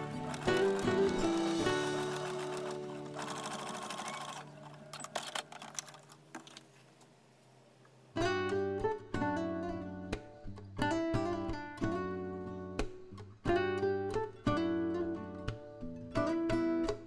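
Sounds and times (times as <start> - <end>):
acoustic guitar music: 0.0 - 4.9, 8.1 - 17.0
sewing machine stitching: 0.0 - 6.6
sewing machine clicks: 2.0 - 6.6.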